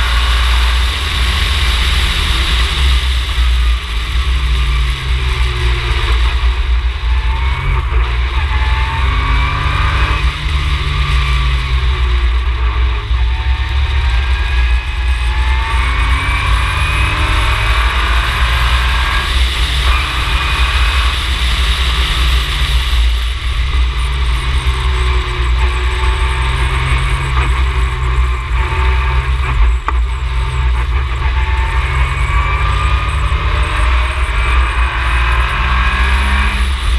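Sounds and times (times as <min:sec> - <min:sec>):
race car engine revving: 0:00.0 - 0:36.9.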